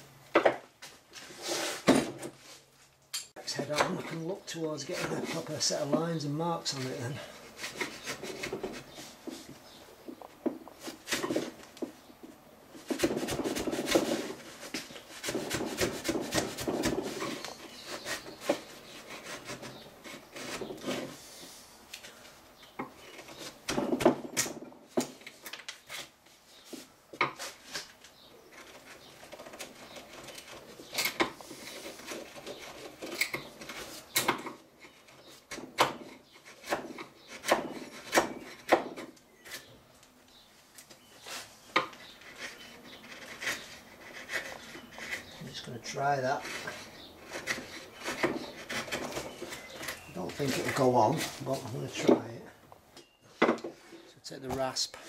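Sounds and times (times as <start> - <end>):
chisel scraping and clicking on wood: 3.2 - 11.9, 12.8 - 21.2, 27.2 - 39.7, 41.7 - 52.3.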